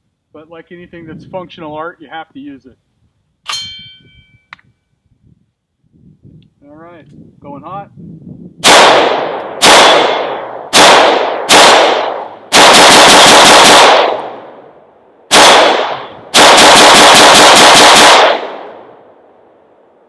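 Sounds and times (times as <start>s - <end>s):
rifle gunshots: 8.6s - 14.7s, 15.3s - 19.2s.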